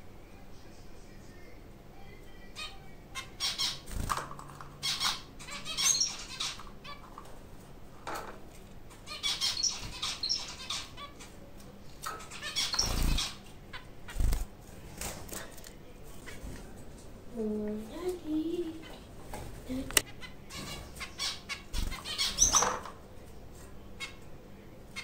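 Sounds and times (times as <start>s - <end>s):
wings flapping: 3.8s - 4.6s
finches calling: 4.8s - 7.0s, 9.0s - 11.3s, 12.2s - 14.3s, 20.0s - 22.8s.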